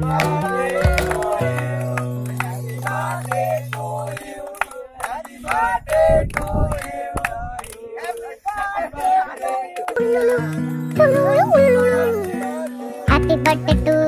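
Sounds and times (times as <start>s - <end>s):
background music: 0.0s - 4.2s, 10.0s - 14.0s
hand claps: 0.0s - 13.2s
men singing and shouting: 0.0s - 13.8s.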